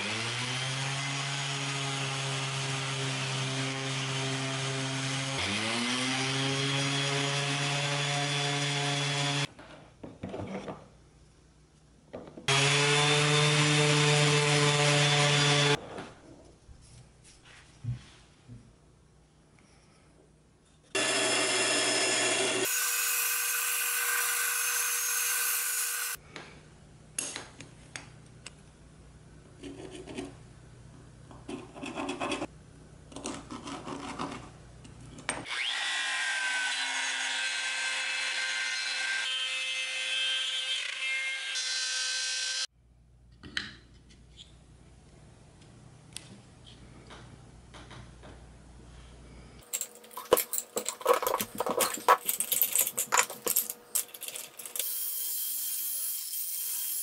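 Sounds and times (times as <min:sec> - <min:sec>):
power tool cutting wood: 0:12.5 - 0:15.8, 0:21.0 - 0:26.2, 0:35.4 - 0:42.7, 0:54.6 - 0:57.0
wood rubbing and scratching: 0:49.7 - 0:54.6.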